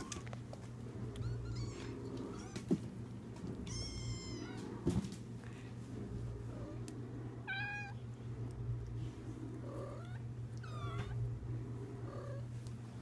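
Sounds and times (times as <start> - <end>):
steady low hum: 0.0 - 13.0
kittens meowing: 3.6 - 4.6.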